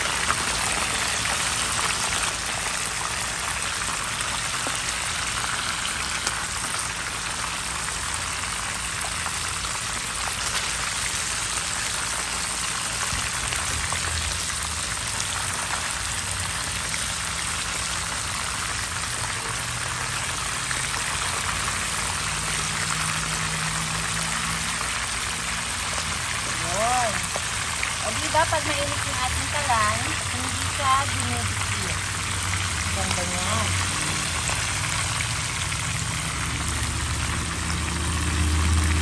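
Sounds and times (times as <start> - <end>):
oil sizzling in a pan: 0.0 - 39.0.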